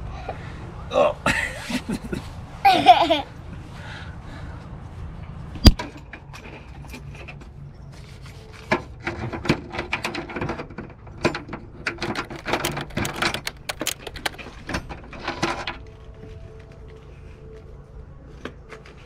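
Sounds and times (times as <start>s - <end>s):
plastic latch clicking and knocking: 11.9s - 14.4s.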